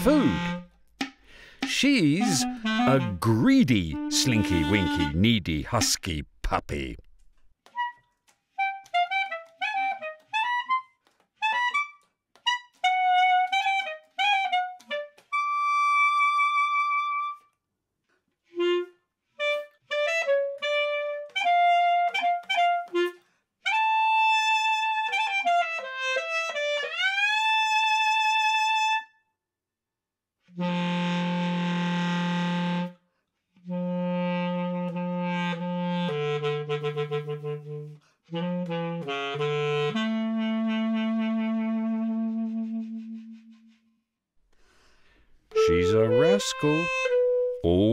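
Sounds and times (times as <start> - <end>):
solo basset horn: 2.2 - 3.3, 30.5 - 32.9, 33.6 - 43.8, 45.5 - 47.6.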